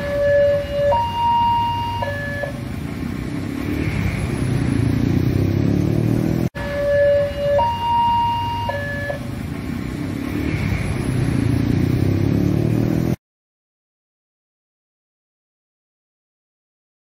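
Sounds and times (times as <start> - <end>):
road traffic rumble: 0.0 - 13.2.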